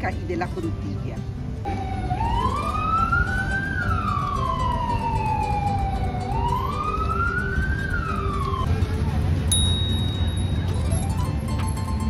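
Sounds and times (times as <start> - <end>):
low rumble of street noise: 0.0 - 12.0
siren wailing: 1.7 - 8.7.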